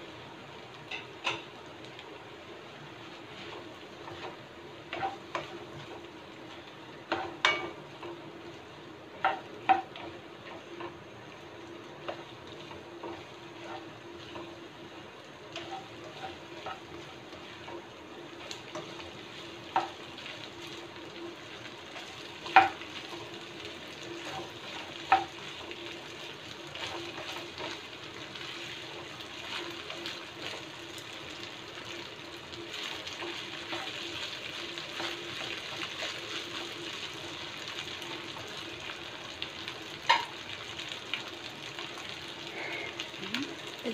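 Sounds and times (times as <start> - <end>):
rice sizzling in a pan: 0.0 - 43.9
spatula scraping a pan: 3.3 - 6.0, 12.1 - 14.6, 15.5 - 30.6.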